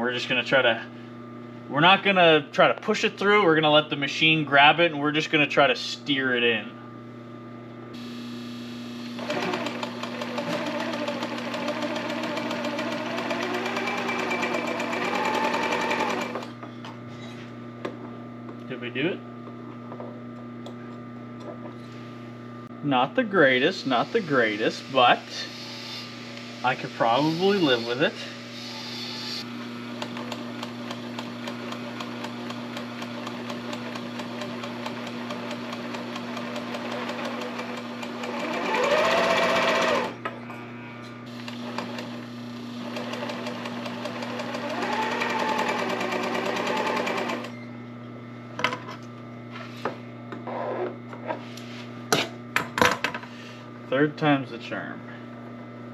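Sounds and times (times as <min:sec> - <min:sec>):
sewing machine motor hum: 0:08.0 - 0:16.6, 0:24.0 - 0:40.3, 0:41.3 - 0:47.7
sewing machine needle stitching: 0:09.2 - 0:16.5, 0:42.8 - 0:47.5.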